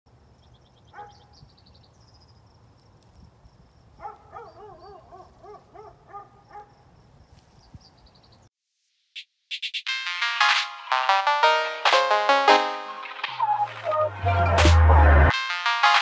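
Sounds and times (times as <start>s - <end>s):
faint high chirping: 0.3s - 2.5s.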